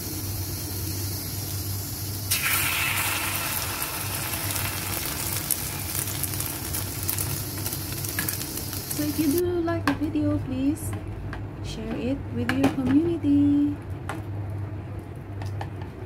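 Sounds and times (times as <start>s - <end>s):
patties sizzling in hot oil: 0.0s - 9.4s
steady low hum: 0.0s - 16.0s.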